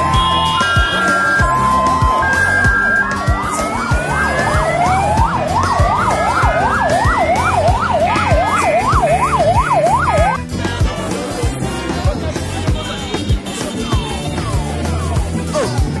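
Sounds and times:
electronic siren yelping: 0.0s - 10.4s
music with steady beat: 0.0s - 16.0s.

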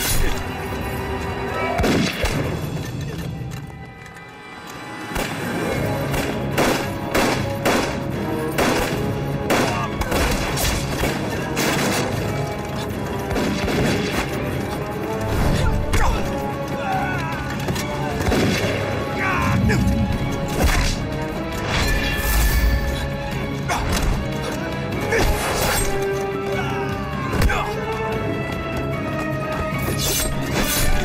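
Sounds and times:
dramatic orchestral score: 0.0s - 31.0s
pistol shots: 6.1s - 12.2s.

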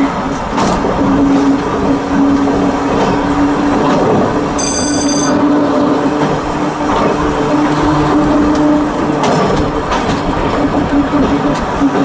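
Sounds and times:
wheels running on rails: 0.0s - 12.0s
high-pitched wheel squeal: 4.6s - 5.6s.

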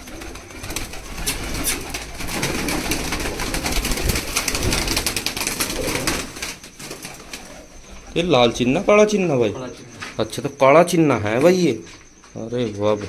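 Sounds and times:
pigeons flapping wings: 0.0s - 8.1s
pigeons cooing: 0.0s - 10.2s.

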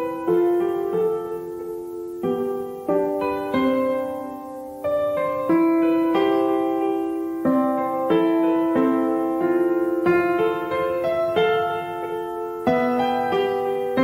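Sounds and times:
slow gentle piano melody: 0.0s - 14.0s.

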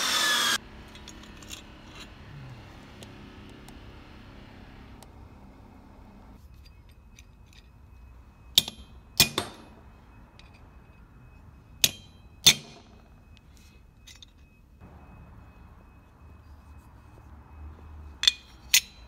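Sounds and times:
hammer striking metal punch: 8.5s - 9.8s, 11.8s - 13.0s.

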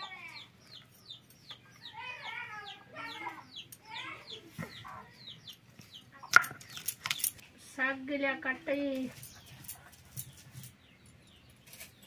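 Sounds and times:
chickens clucking: 0.0s - 7.3s.

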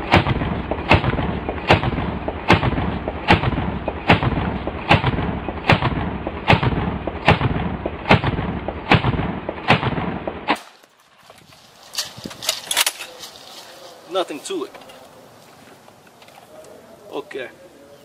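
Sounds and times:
automatic shotgun shots: 0.0s - 10.9s.

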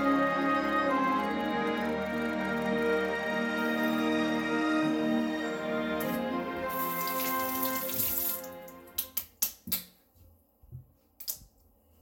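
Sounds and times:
background music: 0.0s - 9.2s
tap water running: 5.9s - 9.2s.

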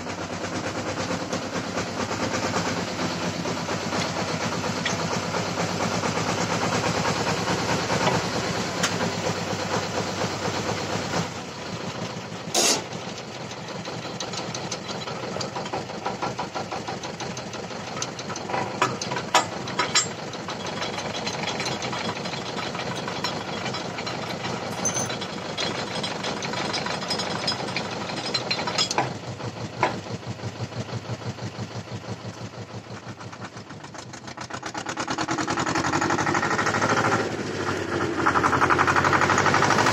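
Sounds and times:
diesel tractor idling: 0.0s - 39.9s
sharp metal clanks: 12.5s - 13.0s, 18.8s - 29.2s.

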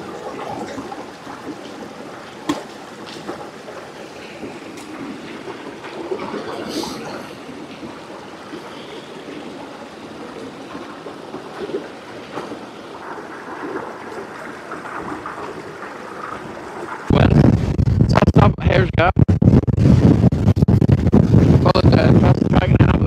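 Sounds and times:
stream running over rocks: 0.0s - 17.3s.

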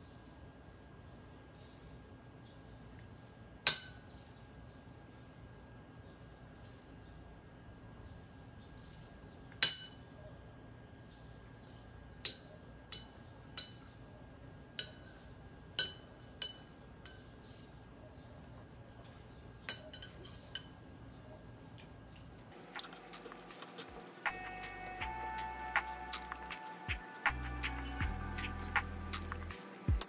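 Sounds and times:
ceramic spoon clinking on dish: 15.8s - 17.3s.

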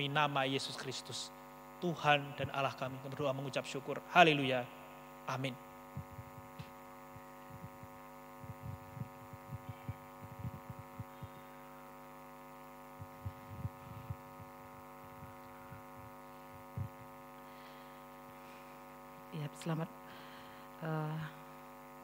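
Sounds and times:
faint electrical hum: 0.0s - 22.0s
soft low thumps: 5.9s - 11.4s, 12.9s - 17.2s.

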